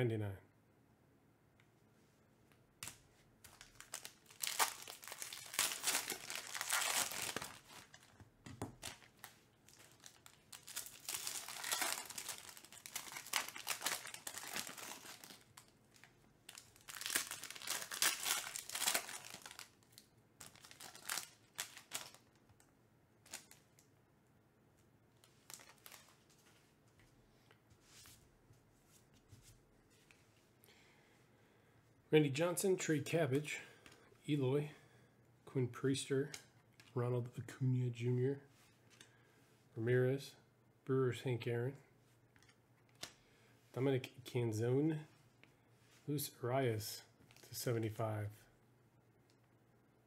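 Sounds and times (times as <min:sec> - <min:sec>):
cards being handled: 0:02.8 - 0:19.8
foil wrapper crinkling and tearing: 0:03.5 - 0:08.2, 0:08.8 - 0:22.4, 0:25.4 - 0:26.2.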